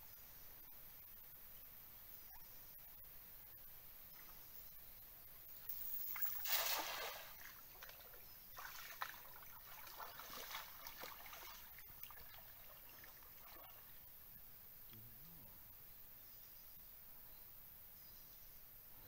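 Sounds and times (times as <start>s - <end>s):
net splashing on water: 6.0s - 8.0s, 8.6s - 13.8s
person wading through water: 6.0s - 14.1s.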